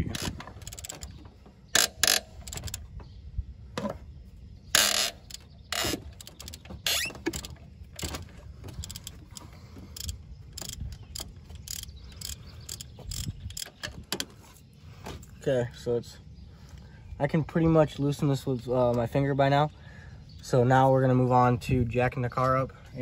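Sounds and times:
ratchet clicking: 0:00.0 - 0:01.2, 0:01.8 - 0:02.8, 0:04.8 - 0:08.2, 0:08.8 - 0:14.2.

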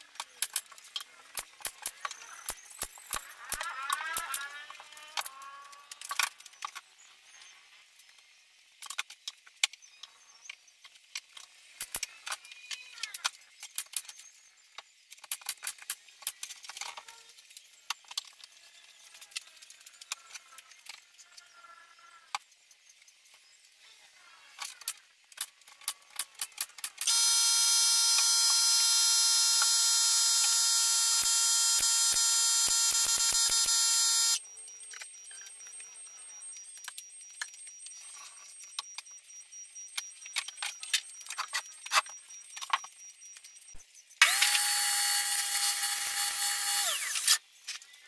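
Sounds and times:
high-pitched whine: 0:27.0 - 0:47.4
wood strips and clamps clicking: 0:44.2 - 0:47.9.

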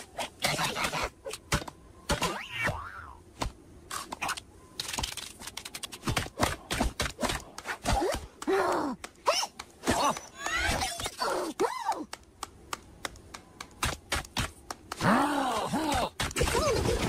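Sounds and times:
cartoon clicks and taps: 0:03.9 - 0:11.1, 0:11.9 - 0:15.0.

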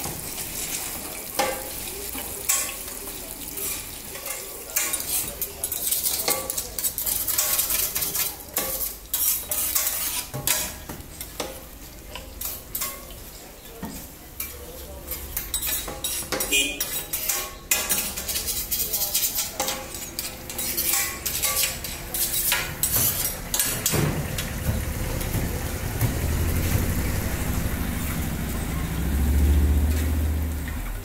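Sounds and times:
food sizzling in oil: 0:00.0 - 0:28.4
metal spatulas scraping griddle: 0:03.5 - 0:11.5, 0:13.9 - 0:24.6.

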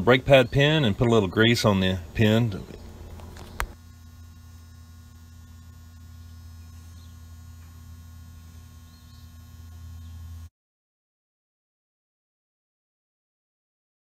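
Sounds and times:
low electrical hum: 0:00.0 - 0:10.5.

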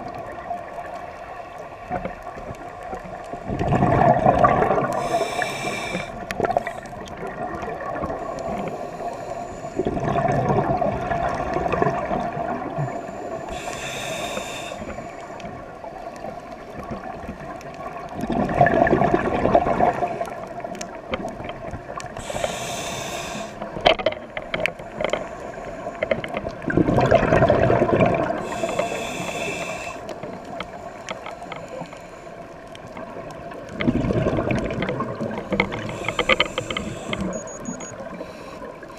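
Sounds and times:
exhaled bubbles rumbling: 0:00.0 - 0:08.8, 0:09.7 - 0:13.7, 0:15.0 - 0:22.4, 0:26.2 - 0:30.6, 0:32.8 - 0:38.1
regulator hissing inhale: 0:04.8 - 0:07.0, 0:08.1 - 0:10.0, 0:12.7 - 0:15.7, 0:22.1 - 0:23.8, 0:24.8 - 0:26.2, 0:28.4 - 0:32.6, 0:35.4 - 0:38.9.

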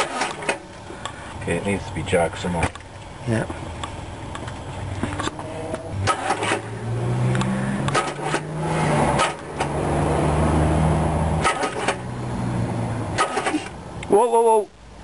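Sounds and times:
starter cranking engine: 0:00.0 - 0:00.8, 0:06.0 - 0:09.8, 0:11.4 - 0:12.1, 0:13.2 - 0:13.8
clicks: 0:07.3 - 0:08.5.

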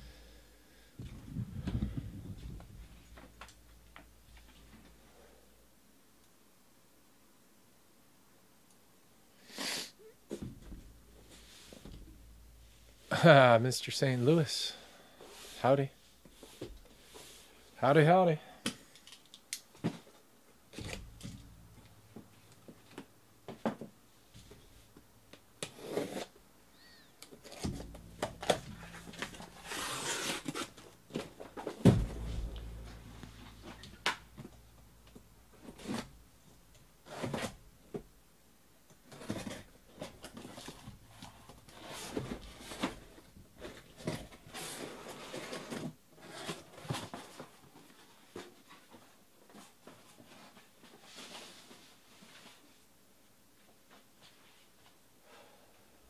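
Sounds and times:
loud thump: 0:20.8 - 0:22.4, 0:27.6 - 0:38.1
cardboard rustling and knocking: 0:27.5 - 0:33.2.

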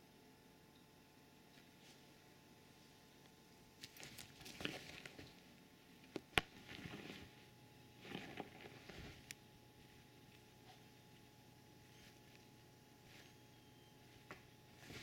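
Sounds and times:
blanket rustling and shuffling: 0:06.6 - 0:15.0.

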